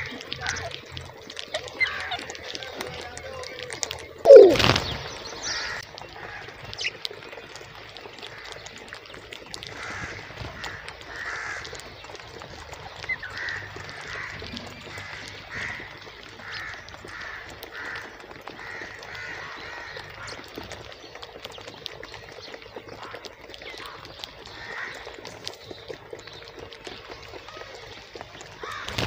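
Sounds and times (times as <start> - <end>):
parakeets calling: 4.3 - 7.0.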